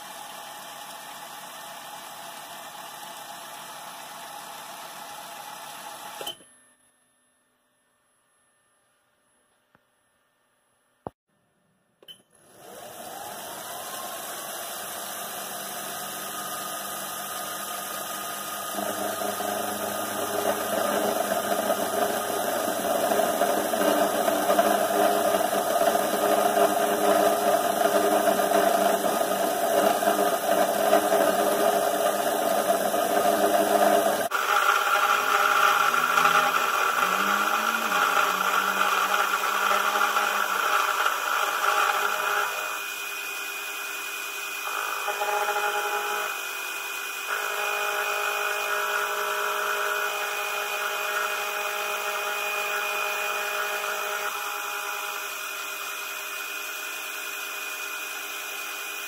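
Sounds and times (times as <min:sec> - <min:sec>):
mill spindle spinning: 0:12.5 - 0:59.0
end mill cutting aluminium: 0:12.6 - 0:43.0, 0:44.6 - 0:57.1.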